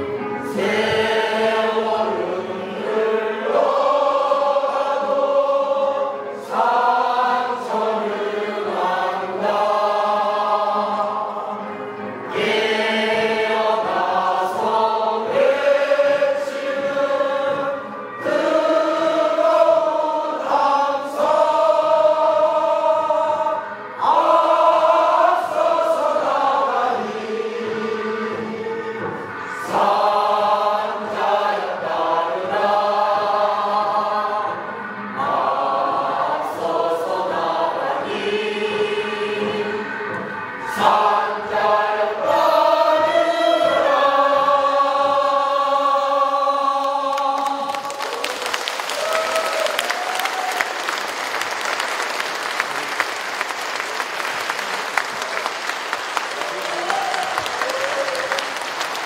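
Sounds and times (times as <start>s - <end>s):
crowd singing in unison: 0.0s - 52.8s.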